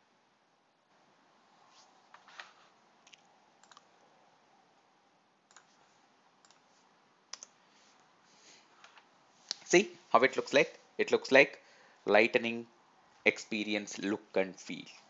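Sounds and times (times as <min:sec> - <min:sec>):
low room hiss: 0:00.0 - 0:15.0
computer mouse clicks: 0:03.0 - 0:03.9, 0:05.5 - 0:05.8, 0:06.4 - 0:06.7, 0:07.3 - 0:08.1.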